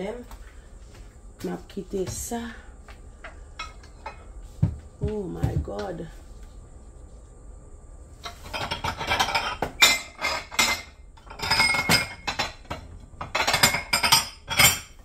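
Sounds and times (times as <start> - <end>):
dishes and utensils clattering: 3.2 - 4.3, 8.2 - 15.0.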